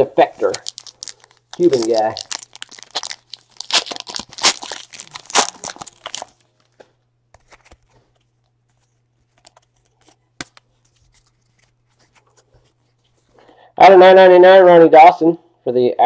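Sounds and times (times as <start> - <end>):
plastic wrapper crinkling and tearing: 0.4 - 6.8
cards being shuffled: 0.4 - 13.4.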